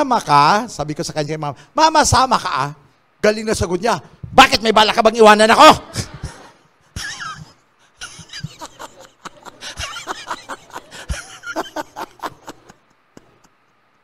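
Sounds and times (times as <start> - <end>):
congregation laughing: 5.8 - 13.6.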